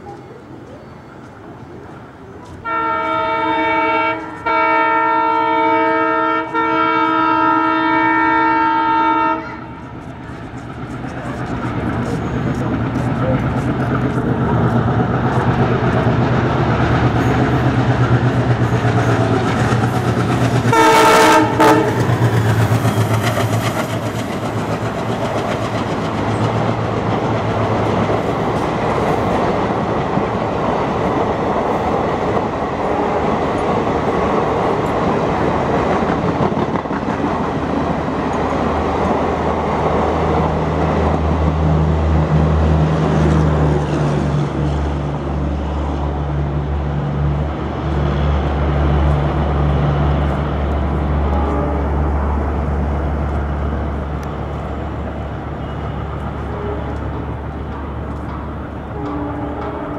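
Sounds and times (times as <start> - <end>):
diesel locomotive engine chugging: 0.0 - 59.9
train coaches clacking over rails: 0.0 - 59.9
locomotive horn blast: 2.6 - 9.9, 20.7 - 22.2, 51.0 - 52.7, 55.6 - 57.4, 58.8 - 59.9.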